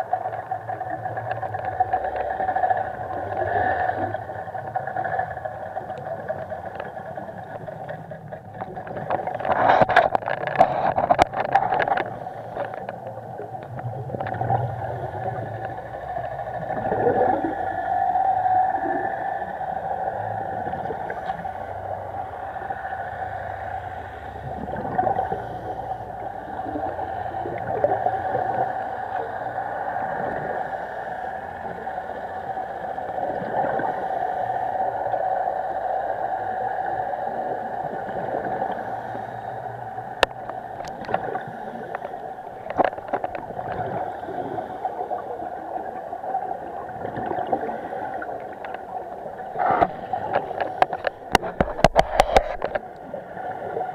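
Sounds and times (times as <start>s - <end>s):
clicks and crackles: 0.0s - 15.9s, 40.1s - 44.0s, 48.2s - 53.2s
muffled underwater drone: 0.0s - 53.9s.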